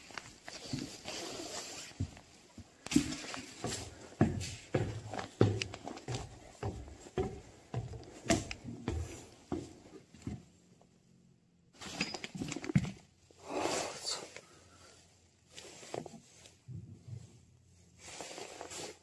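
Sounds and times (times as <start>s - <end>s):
footsteps on wooden stairs: 1.9s - 10.6s.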